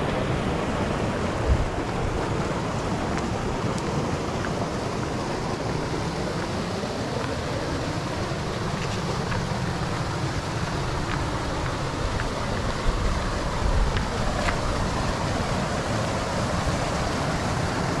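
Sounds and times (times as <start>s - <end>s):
wind buffeting microphone: 0.0s - 4.4s
water rushing over spillway: 0.0s - 18.0s.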